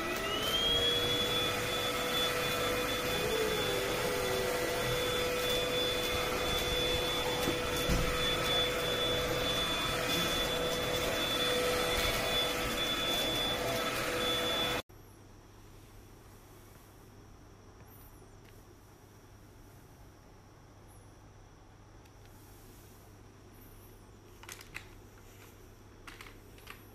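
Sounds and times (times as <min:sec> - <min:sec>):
vacuum cleaner whining: 0:00.0 - 0:14.9.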